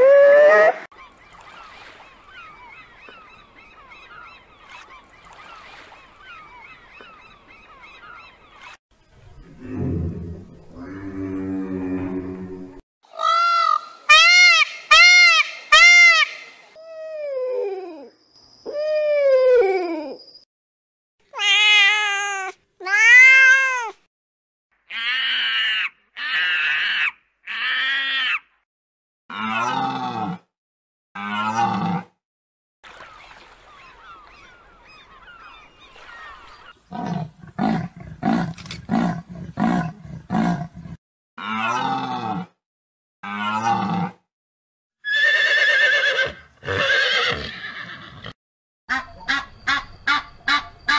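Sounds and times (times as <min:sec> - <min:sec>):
horse neighing: 0:45.1 - 0:48.4.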